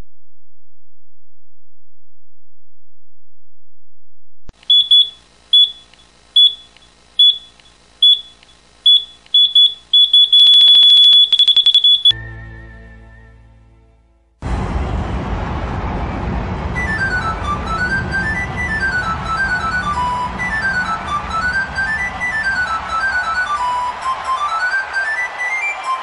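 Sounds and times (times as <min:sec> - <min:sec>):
high electronic beeps: 0:04.6 - 0:12.2
lower electronic tone: 0:14.4 - 0:23.6.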